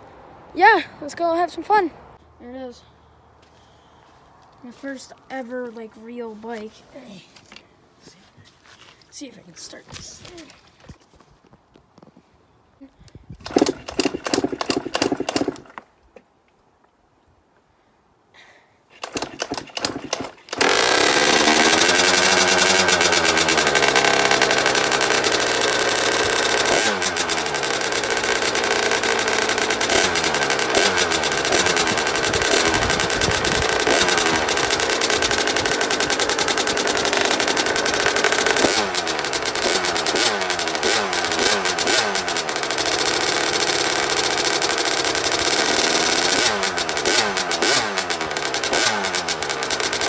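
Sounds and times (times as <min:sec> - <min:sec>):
dirt bike engine starting and revving: 0:13.4 - 0:15.9, 0:18.9 - 0:50.0.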